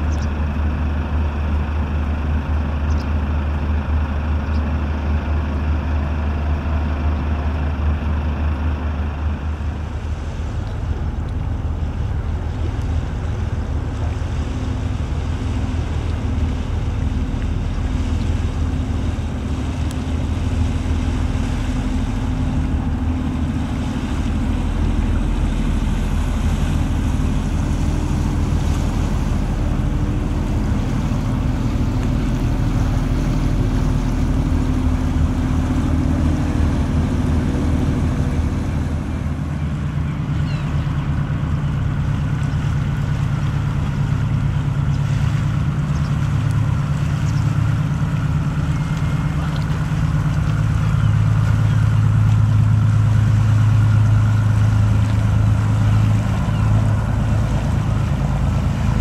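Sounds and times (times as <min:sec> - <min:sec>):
boat diesel engine running: 0:00.0 - 0:59.0
second boat engine: 0:00.0 - 0:59.0
water washing around hull: 0:00.0 - 0:59.0.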